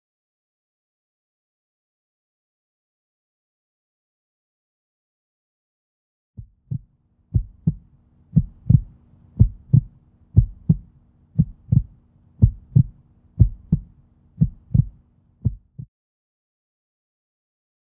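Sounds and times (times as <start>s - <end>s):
faint steady hum: 6.4s - 15.8s
heartbeat thumps: 6.4s - 15.9s.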